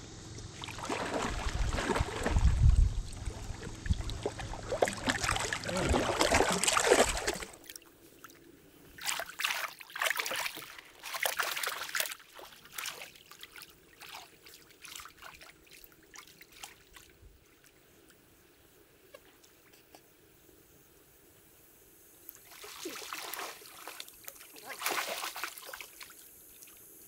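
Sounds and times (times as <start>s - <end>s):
splashing steps in river: 0.6s - 7.8s, 9.0s - 17.1s, 22.4s - 26.1s.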